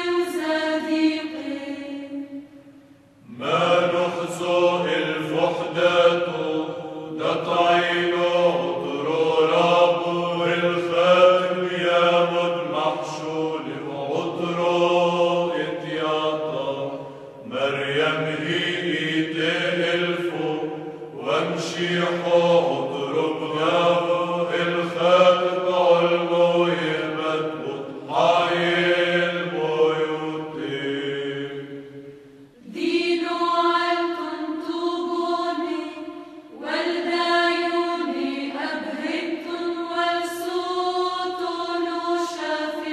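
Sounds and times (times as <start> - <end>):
voices chanting a hymn: 0.0 - 42.9
higher-pitched voices singing: 17.5 - 31.7.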